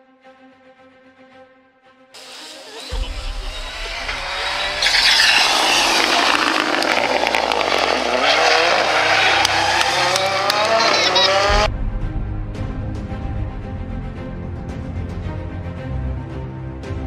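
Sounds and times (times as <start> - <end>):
rally car engine accelerating: 2.2 - 11.7
sharp exhaust cracks: 2.9 - 11.7.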